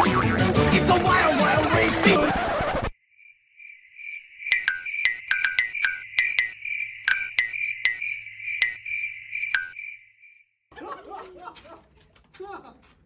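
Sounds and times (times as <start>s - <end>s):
crickets chirping: 3.0s - 10.6s
sharp clicks: 4.5s - 8.8s, 11.2s - 13.0s.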